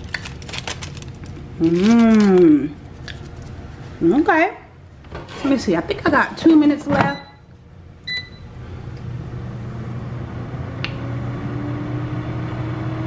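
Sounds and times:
air fryer beep: 7.0s - 8.6s
fan motor humming and whining: 7.5s - 13.0s.

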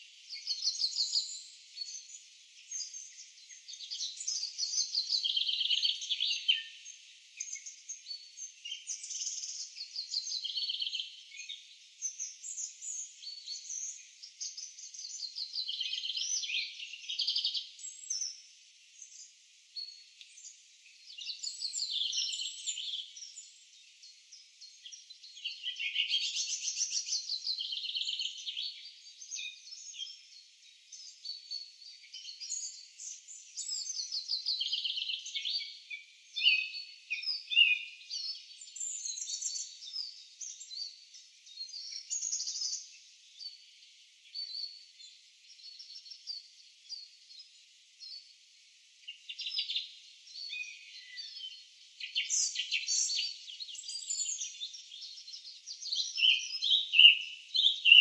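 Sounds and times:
small birds chirping and trilling: 0.0s - 58.0s.

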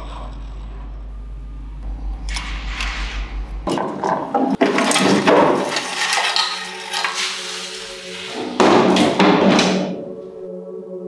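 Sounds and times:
metal parts clattering and scraping: 3.6s - 9.9s.

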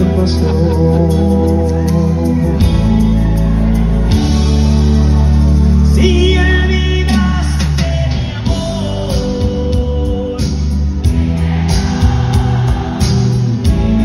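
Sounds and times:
live band playing: 0.0s - 14.0s
drums keeping steady beat: 7.1s - 14.0s.

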